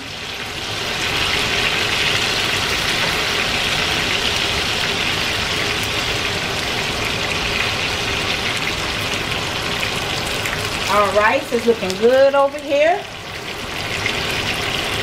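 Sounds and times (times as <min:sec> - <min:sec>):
chicken sizzling in frying pan: 0:00.0 - 0:15.0.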